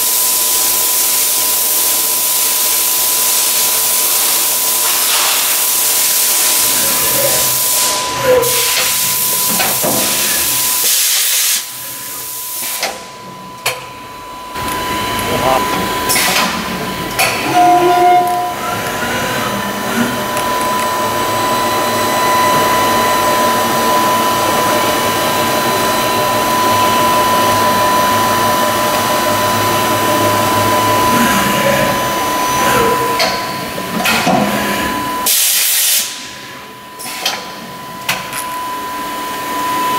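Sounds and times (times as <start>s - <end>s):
machine hiss: 0.0s - 13.1s, 21.1s - 37.6s
machine high whine: 0.0s - 39.9s.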